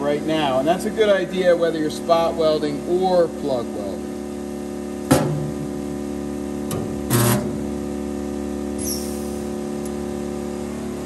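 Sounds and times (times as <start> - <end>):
spot welder bursts: 8.8 - 9.6.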